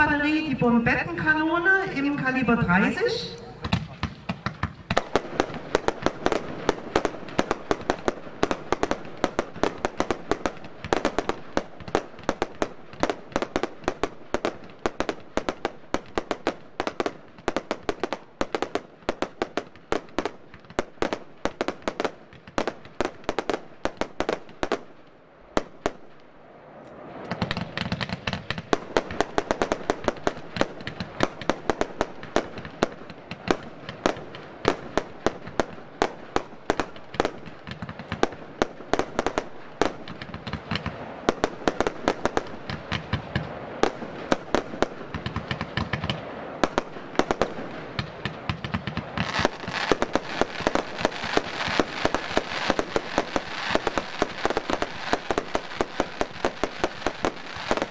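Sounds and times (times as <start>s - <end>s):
firework bursting bangs: 0.0s - 26.2s, 27.0s - 57.9s
firework launch thumps: 3.6s - 5.1s.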